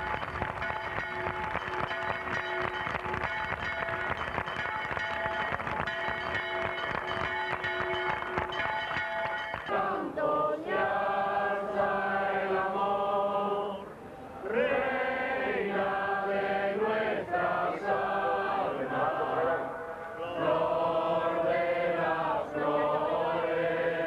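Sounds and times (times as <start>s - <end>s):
group of voices singing: 9.6s - 24.0s.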